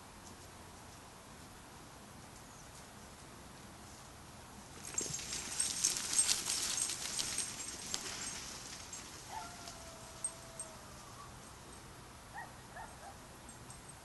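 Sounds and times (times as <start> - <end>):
deer hooves clattering on gravel: 4.6 - 10.7.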